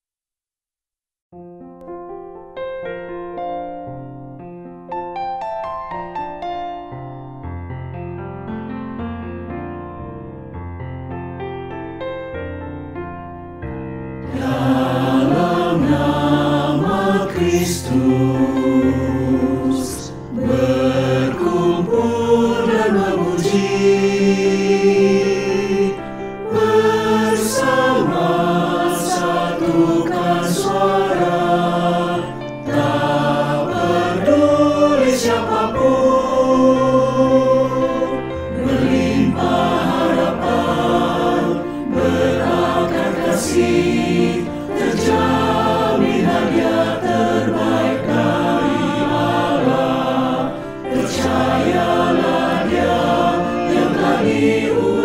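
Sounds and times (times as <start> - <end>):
piano accompaniment: 1.4 - 55.0
mixed choir singing a hymn: 14.2 - 55.0.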